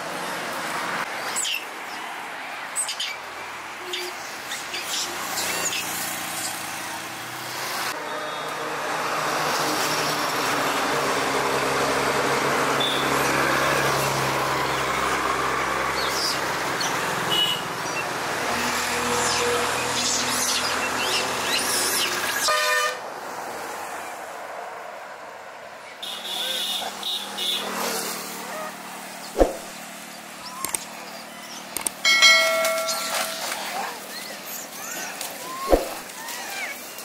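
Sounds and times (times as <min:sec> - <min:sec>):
vehicle engines passing: 0:00.0 - 0:37.0
car horns tooting: 0:12.8 - 0:13.3, 0:17.3 - 0:17.7, 0:22.4 - 0:23.0, 0:26.0 - 0:27.8.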